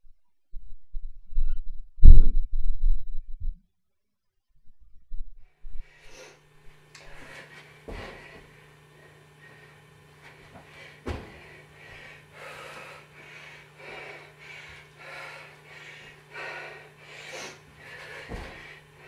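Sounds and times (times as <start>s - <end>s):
woman panting: 7.1s - 19.0s.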